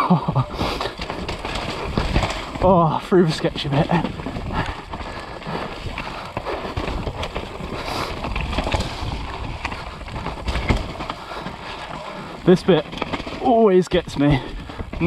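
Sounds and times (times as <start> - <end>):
bike knocks and rattles: 0.0 - 15.0
bike tyres rolling over dirt: 0.0 - 15.0
wind noise on microphone: 3.8 - 11.8.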